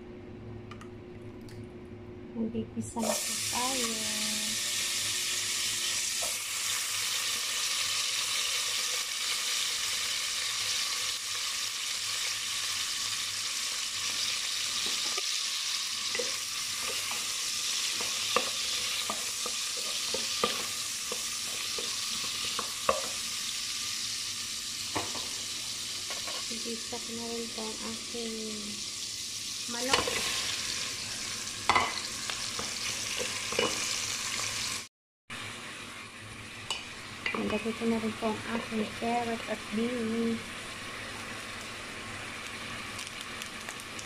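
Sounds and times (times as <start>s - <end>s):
shallots and garlic sizzling: 2.9s - 44.0s.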